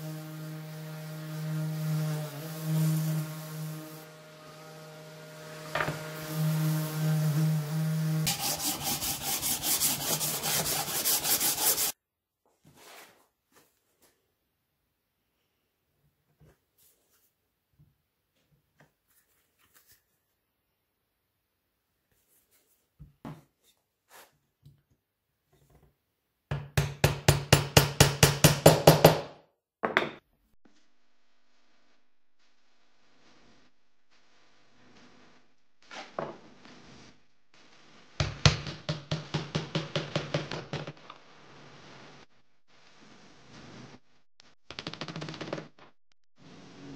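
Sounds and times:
electric sander running: 0:00.0 - 0:11.9
sanding block rubbing on wood: 0:00.0 - 0:12.0.

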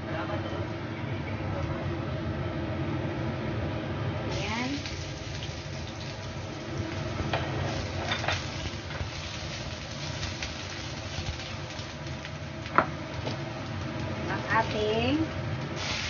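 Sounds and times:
steady low hum: 0:00.0 - 0:16.0
garlic sizzling in hot oil: 0:04.3 - 0:16.0.

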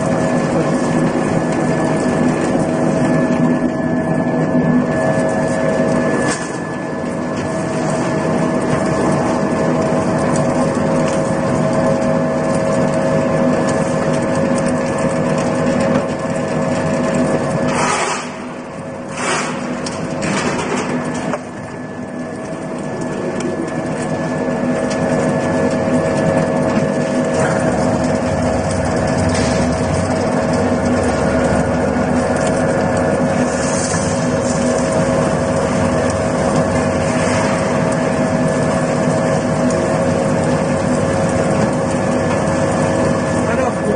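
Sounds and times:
oil press machine droning: 0:00.0 - 0:43.9.

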